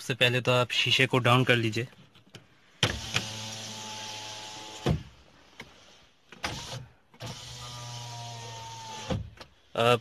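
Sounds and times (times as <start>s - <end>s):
power window motor running: 6.4s - 9.4s.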